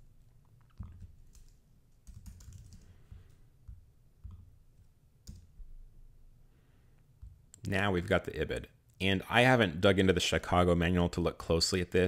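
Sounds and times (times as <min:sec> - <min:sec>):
keyboard typing: 0:00.6 - 0:05.7.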